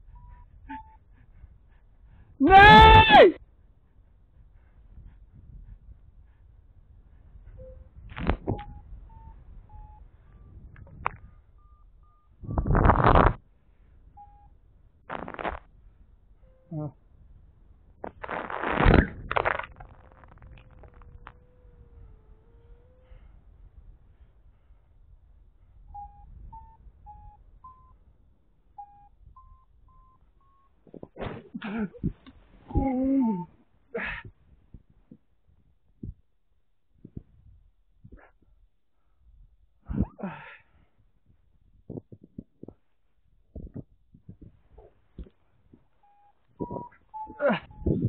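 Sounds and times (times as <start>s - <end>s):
variometer beeping: 0.0s - 1.1s, 7.5s - 13.4s, 14.1s - 14.6s, 25.8s - 28.1s, 28.7s - 30.8s, 45.2s - 48.0s
wind rumble on microphone: 3.4s - 28.2s, 31.9s - 33.6s, 34.2s - 36.3s, 37.0s - 38.6s, 39.2s - 40.2s, 41.2s - 48.0s.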